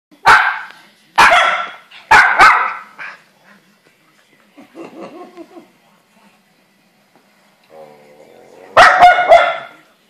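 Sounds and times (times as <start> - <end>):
dog barking: 0.2 - 2.9, 8.8 - 9.8.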